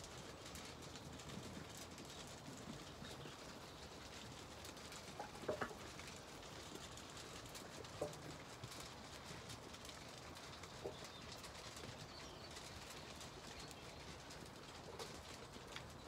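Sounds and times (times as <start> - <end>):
sheep hooves and mouths rustling: 0.0 - 16.0.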